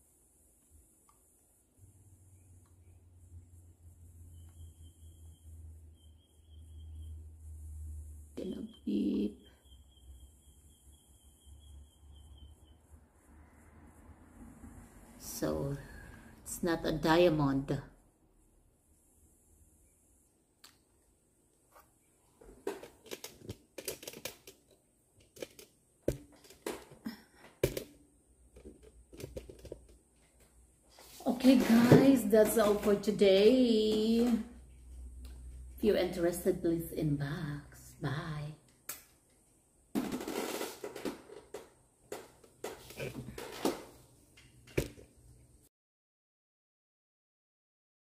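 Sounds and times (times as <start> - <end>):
rustling and handling noises: 21.6 - 35.6, 40.0 - 45.2
objects clicking and knocking on tabletop: 22.5 - 30.0, 40.0 - 45.1.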